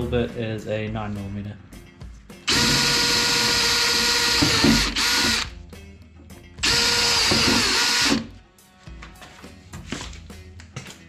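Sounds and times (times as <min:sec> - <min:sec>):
cordless drill whining through steel: 0:02.5 - 0:05.5, 0:06.6 - 0:08.3.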